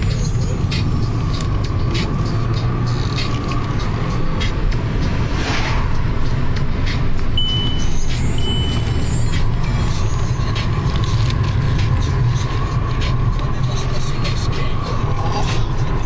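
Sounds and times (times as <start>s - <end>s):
car engine and road noise: 0.0s - 16.0s
short high beeps: 7.4s - 9.4s.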